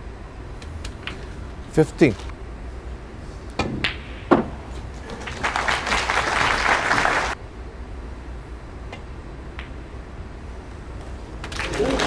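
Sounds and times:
audience applause: 5.1s - 7.4s, 11.4s - 12.0s.

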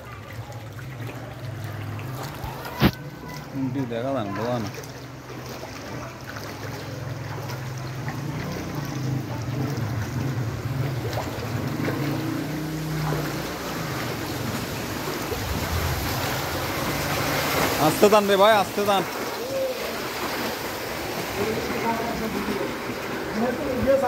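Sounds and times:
water splashing and sloshing: 0.0s - 24.0s
low hum: 13.2s - 17.8s.

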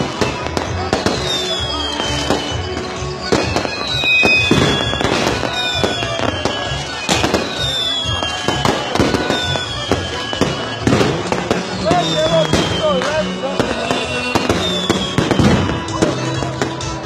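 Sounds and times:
falling firework whistles: 0.0s - 16.9s
fireworks bangs and crackling: 0.0s - 17.0s.

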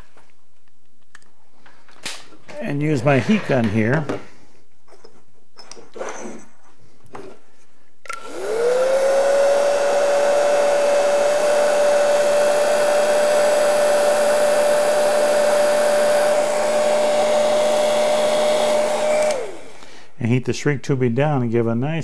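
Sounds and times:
heat gun fan whine: 8.1s - 20.0s.

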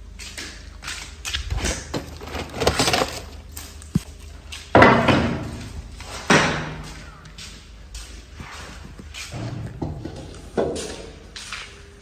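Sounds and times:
cardboard and plastic boxes rustling: 1.0s - 4.2s
clattering crashes: 1.6s - 3.4s.

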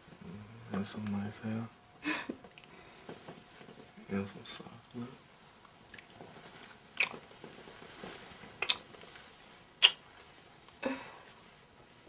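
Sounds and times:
kissing lip smacks: 7.0s - 7.2s, 8.6s - 8.8s, 9.8s - 10.0s.

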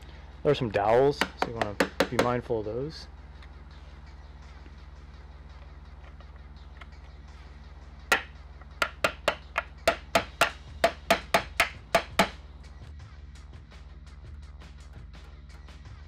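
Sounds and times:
metal tool striking pry bar: 8.1s - 12.4s.

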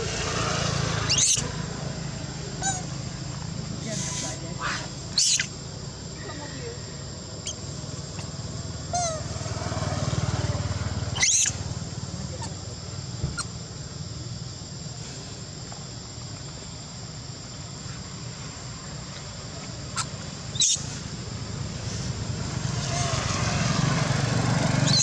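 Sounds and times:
insect drone: 0.0s - 25.0s
monkey squealing: 1.0s - 1.6s, 2.6s - 3.0s, 4.0s - 5.6s, 7.4s - 7.6s, 8.9s - 9.3s, 11.1s - 11.6s, 20.0s - 20.9s.

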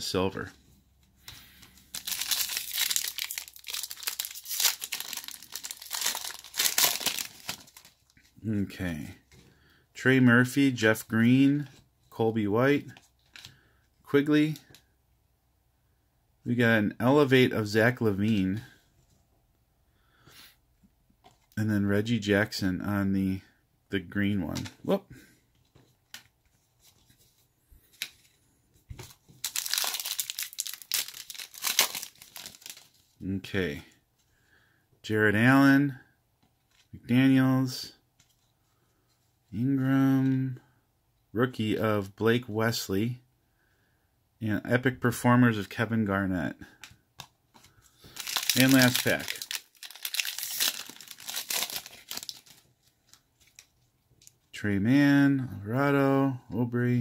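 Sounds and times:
foil wrapper crinkling and tearing: 1.6s - 8.2s, 29.4s - 33.0s, 48.0s - 54.4s.

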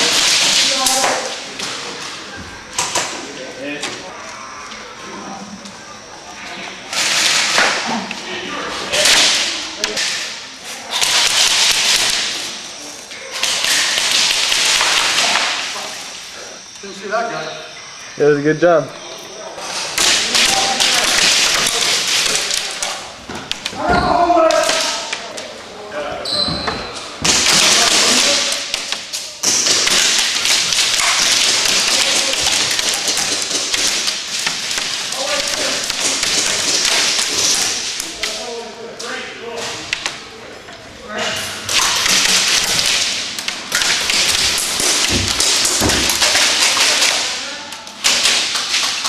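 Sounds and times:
airsoft guns firing: 10.9s - 12.4s, 13.4s - 15.8s
pellets striking wooden walls: 27.2s - 37.8s, 41.7s - 47.4s.

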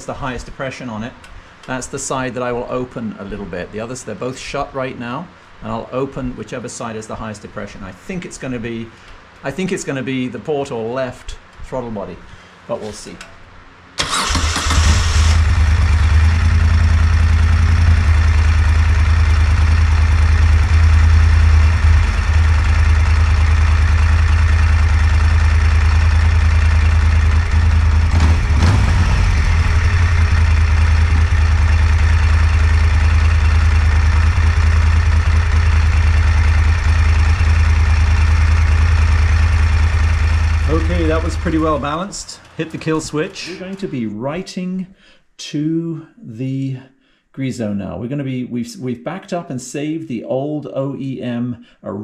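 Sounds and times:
motorcycle engine idling: 15.4s - 43.8s.

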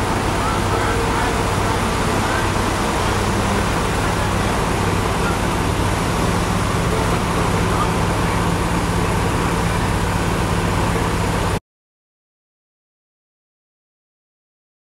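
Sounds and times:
diesel truck engine droning: 0.0s - 11.6s.

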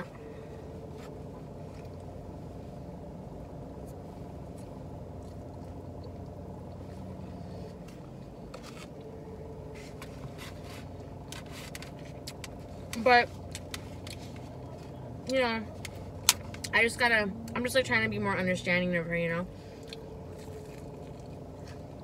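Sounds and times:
car cabin hum: 0.0s - 22.0s
person chewing and lip-smacking: 19.8s - 22.0s.

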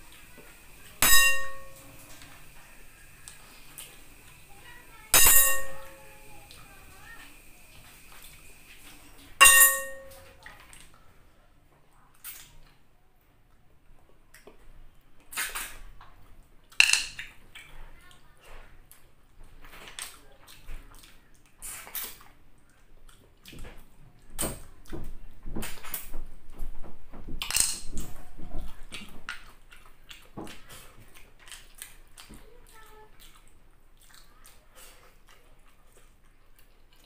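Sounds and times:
wet slurps: 20.0s - 22.8s.

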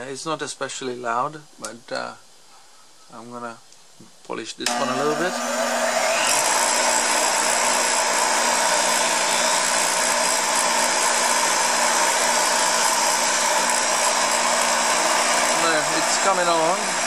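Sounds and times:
bench grinder wire wheel whirring: 4.7s - 17.0s.

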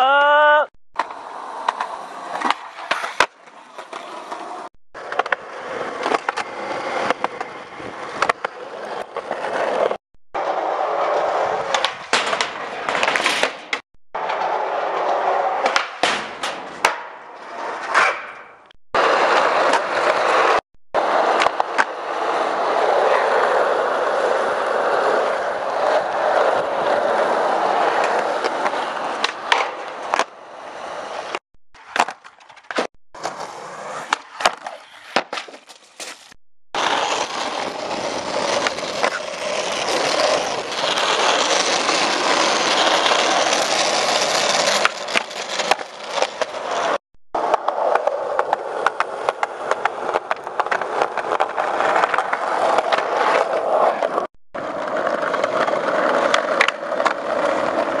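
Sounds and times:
skateboard popping and landing: 1.0s - 58.0s
skateboard wheels rolling on concrete: 1.0s - 58.0s.

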